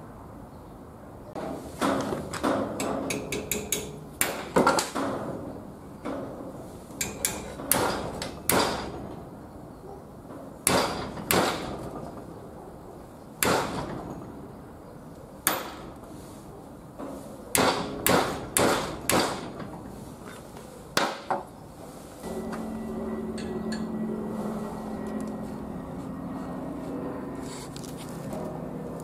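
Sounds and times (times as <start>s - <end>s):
hammer striking metal: 1.8s - 5.2s, 7.0s - 9.0s, 10.6s - 11.8s, 15.4s - 15.9s, 22.2s - 26.1s.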